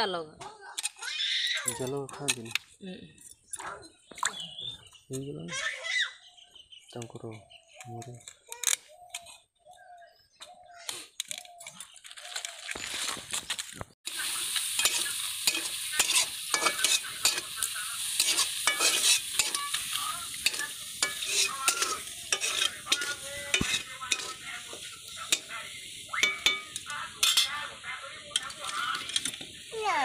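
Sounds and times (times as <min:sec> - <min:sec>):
metal spoon scraping a pan: 0:14.1 - 0:29.7
shellfish sizzling in a pan: 0:14.1 - 0:30.0.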